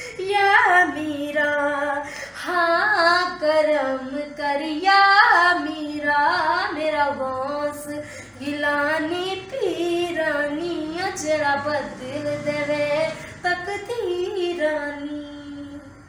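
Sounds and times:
singer breathing: 0.0s - 0.2s, 2.0s - 2.4s, 7.9s - 8.4s
woman singing unaccompanied: 0.0s - 16.0s.

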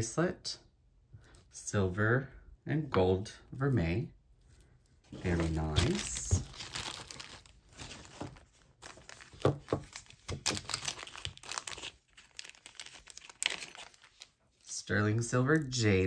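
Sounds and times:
plastic bag crinkling: 5.2s - 14.4s.

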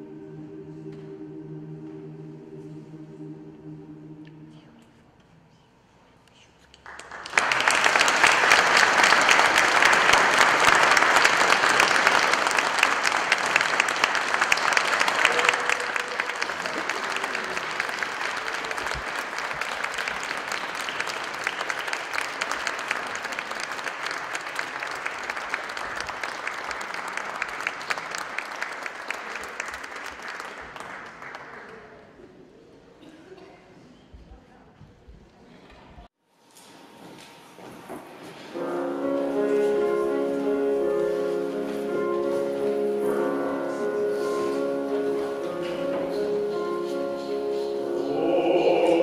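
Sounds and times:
audience applauding: 6.8s - 32.2s, 48.0s - 49.0s.

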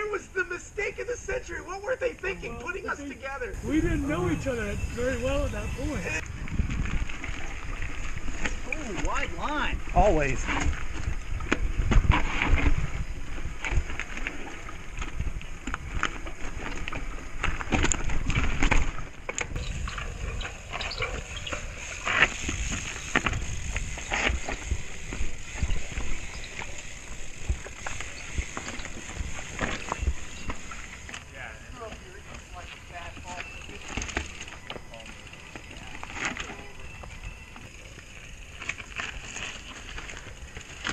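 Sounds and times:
bike knocking and rattling: 3.9s - 40.9s.

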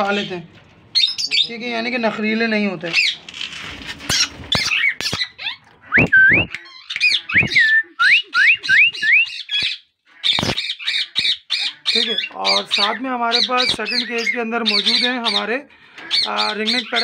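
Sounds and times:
parakeets squawking: 0.0s - 2.3s, 2.9s - 17.0s.

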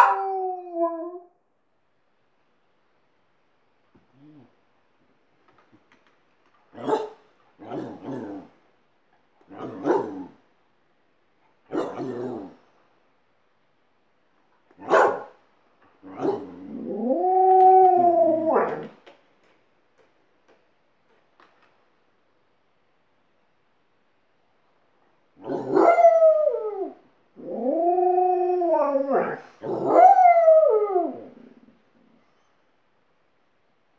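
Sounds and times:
dog howling: 0.0s - 1.3s, 16.1s - 19.0s, 25.4s - 31.4s.

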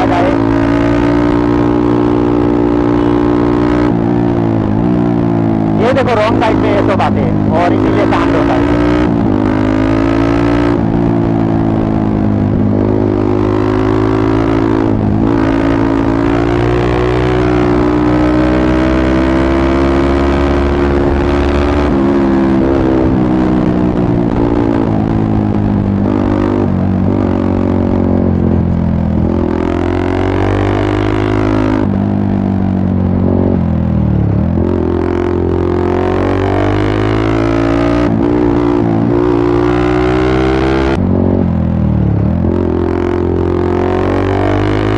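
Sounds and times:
motorcycle engine revving: 0.0s - 44.9s.

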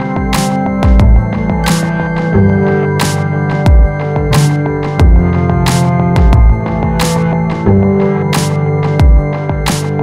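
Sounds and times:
synth chords: 0.0s - 10.0s
deep kick drums: 0.2s - 1.9s, 3.6s - 7.8s, 9.0s - 9.6s.

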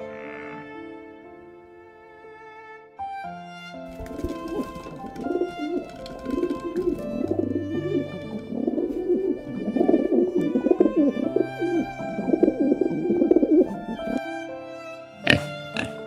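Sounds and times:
background music: 0.0s - 16.0s
pigeons cooing: 4.0s - 14.2s.

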